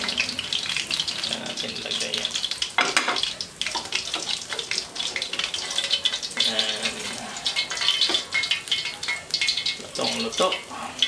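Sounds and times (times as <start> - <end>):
oil sizzling and crackling: 0.0 - 11.0.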